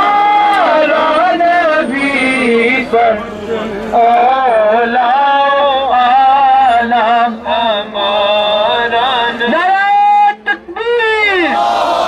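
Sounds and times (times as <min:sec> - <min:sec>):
man chanting: 0:04.0 - 0:11.6.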